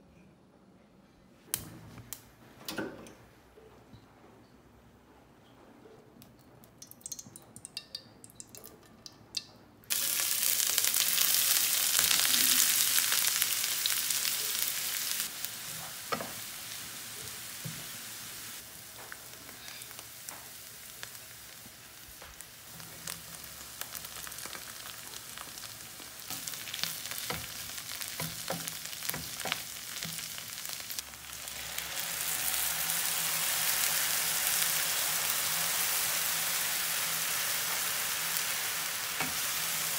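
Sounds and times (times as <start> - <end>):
food sizzling in frying pan: 9.9 - 39.9.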